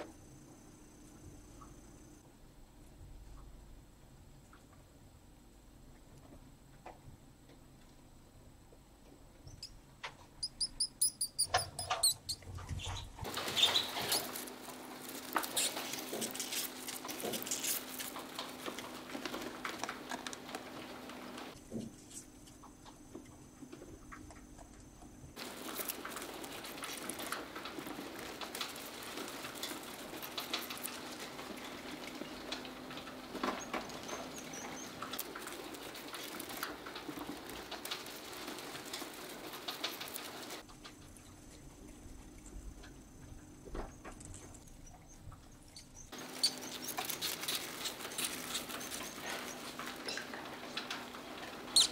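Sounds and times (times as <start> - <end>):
high-pitched mouse squeaks: 10.4 - 14.4, 45.0 - 50.3
mice rustling through straw: 10.9 - 22.3, 25.4 - 40.7, 46.1 - 51.9.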